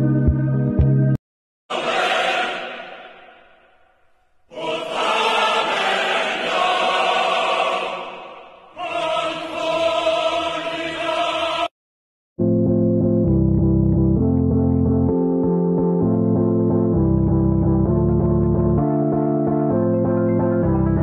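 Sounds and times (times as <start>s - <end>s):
choir singing held chords: 1.7s - 11.7s.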